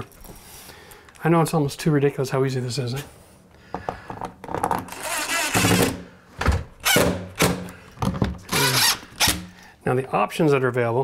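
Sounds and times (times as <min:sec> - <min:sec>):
cordless drill driving screws: 0:08.5 - 0:09.4.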